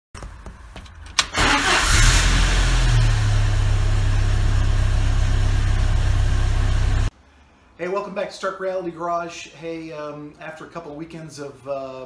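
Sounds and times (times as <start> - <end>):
car engine starting and idling: 0.9 - 7.1
engine starter click: 1.1 - 2.7.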